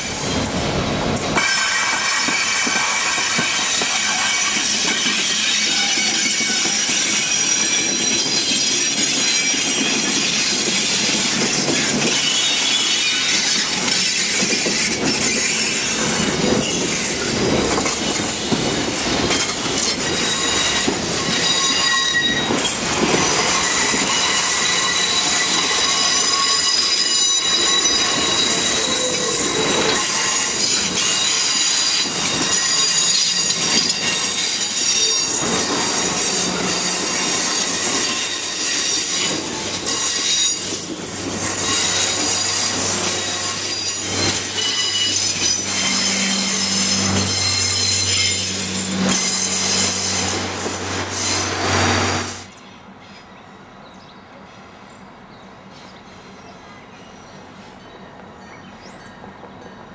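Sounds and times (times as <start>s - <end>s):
train coaches rolling past: 0.0s - 59.9s
steel wheels squealing: 1.4s - 52.5s.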